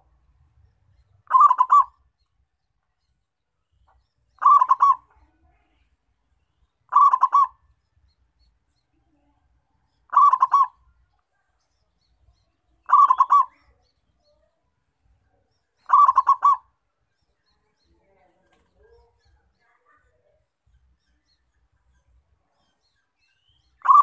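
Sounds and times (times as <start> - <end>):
dove cooing: 1.3 - 2.0, 4.4 - 5.2, 6.9 - 7.6, 10.1 - 10.8, 12.8 - 13.7, 15.8 - 16.7.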